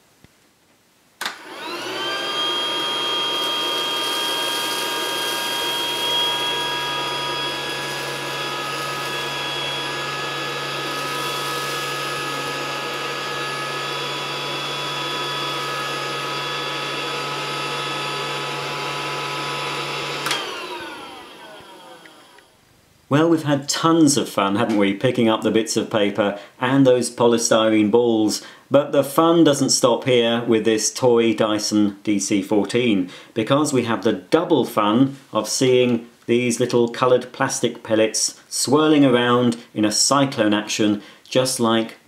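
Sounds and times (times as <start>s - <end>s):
toy vacuum motor whining: 1.2s - 22.6s.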